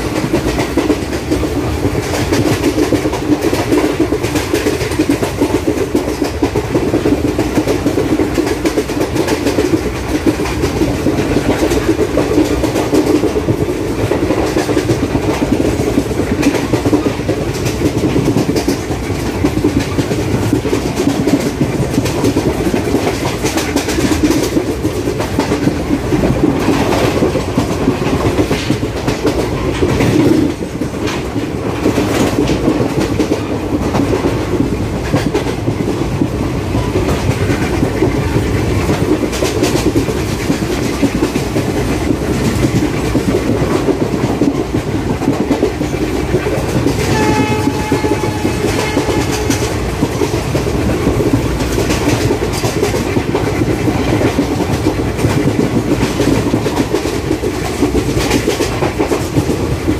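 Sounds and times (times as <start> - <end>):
train wheels clicking over rail joints: 0.0 - 59.9
track rumble: 34.6 - 56.8.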